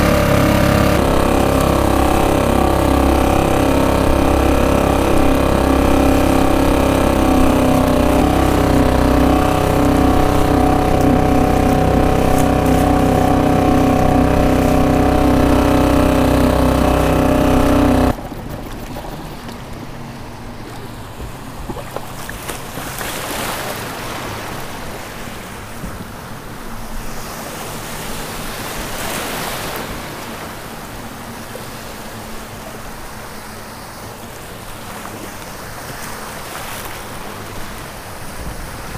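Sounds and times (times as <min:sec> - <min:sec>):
outboard motor droning: 0:00.0 - 0:38.9
small waves sloshing: 0:00.0 - 0:38.9.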